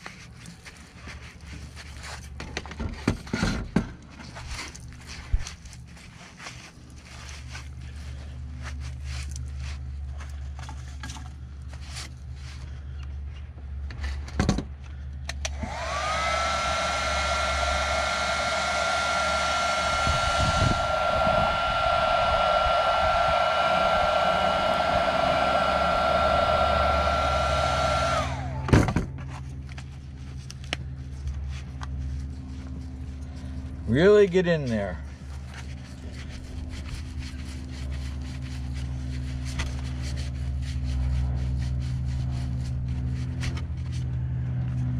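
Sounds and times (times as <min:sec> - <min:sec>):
heat gun fan whine: 0:13.9 - 0:44.9.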